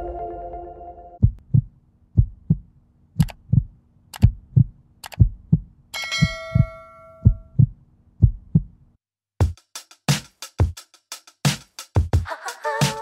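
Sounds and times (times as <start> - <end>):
heartbeat-like double thump: 1.2 - 8.7
bell ding: 6.0 - 7.5.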